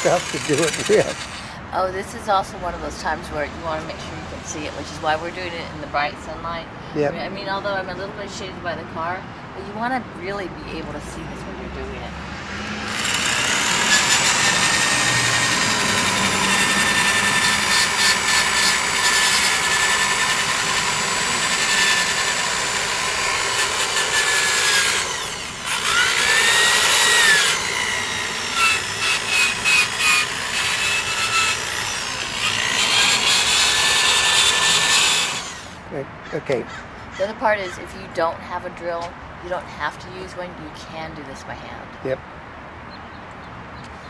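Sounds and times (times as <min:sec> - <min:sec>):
sanding disc rubbing on metal: 0:00.0 - 0:01.4
drill motor whine: 0:00.0 - 0:01.5, 0:12.4 - 0:35.8.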